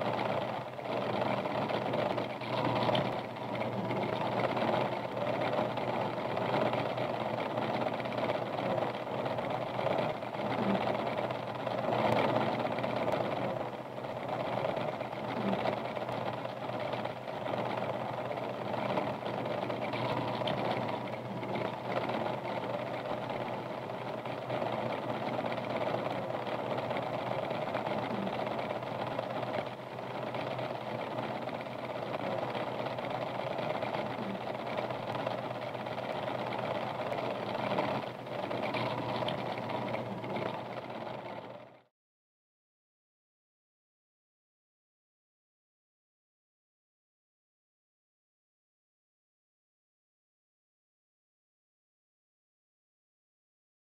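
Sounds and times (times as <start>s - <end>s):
machine running: 0.0s - 41.9s.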